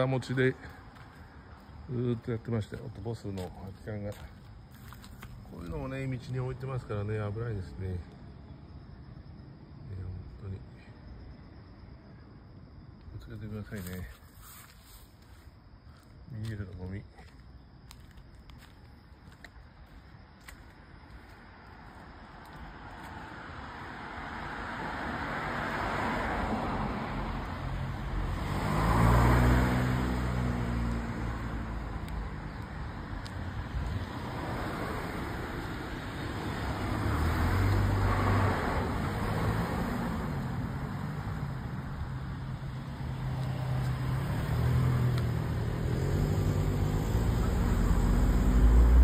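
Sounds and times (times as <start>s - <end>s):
cars passing: 0.0s - 8.1s, 19.8s - 49.0s
vehicle engine hum: 21.1s - 49.0s.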